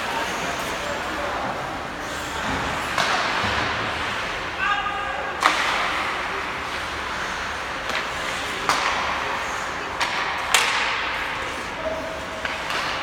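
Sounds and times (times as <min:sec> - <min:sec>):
hockey sticks hitting puck: 0:00.5 - 0:13.0
puck hitting boards: 0:02.4 - 0:04.0, 0:05.4 - 0:06.9, 0:07.7 - 0:13.0.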